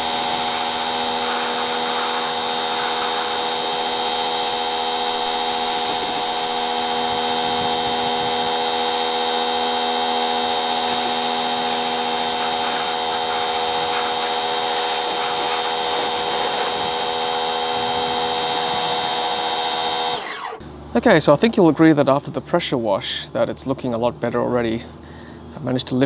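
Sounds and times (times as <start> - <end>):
water jet hissing on car: 0.0 - 20.2
pressure washer motor whine: 0.0 - 20.9.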